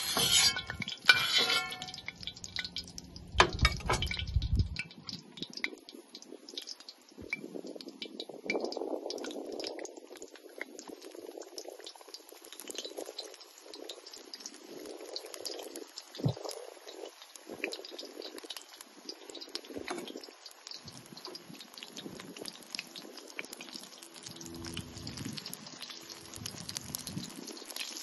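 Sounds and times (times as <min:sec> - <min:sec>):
vegetables sizzling in hot oil: 0:00.0 - 0:28.0
low rumble: 0:02.2 - 0:04.8, 0:24.4 - 0:25.4.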